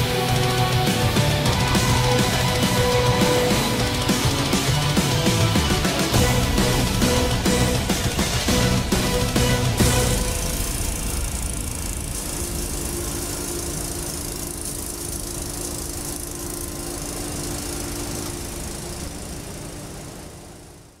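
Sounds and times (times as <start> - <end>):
electric locomotive rumble: 0.0 - 20.9
steady hum: 0.0 - 21.0.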